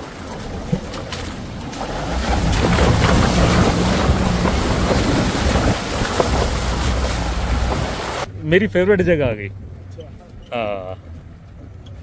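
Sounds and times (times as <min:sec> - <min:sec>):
wind buffeting microphone: 0:00.0 - 0:08.3
vehicle engine drone: 0:01.4 - 0:12.0.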